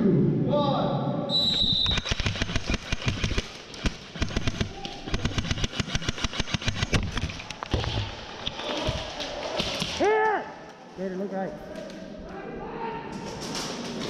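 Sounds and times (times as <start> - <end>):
airsoft guns firing rapidly: 1.7 - 7.4.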